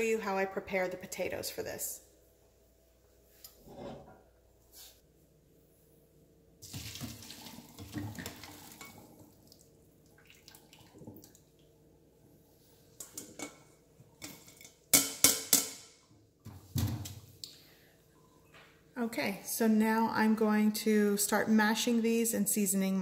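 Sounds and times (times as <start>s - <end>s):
water splashing into colander: 6.6s - 11.7s.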